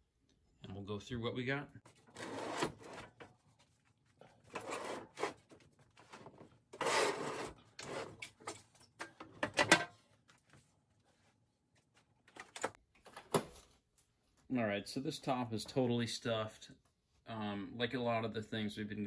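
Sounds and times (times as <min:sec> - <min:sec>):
tool chest scraping on bench: 0:02.1 - 0:03.2, 0:04.5 - 0:05.5, 0:06.1 - 0:08.2.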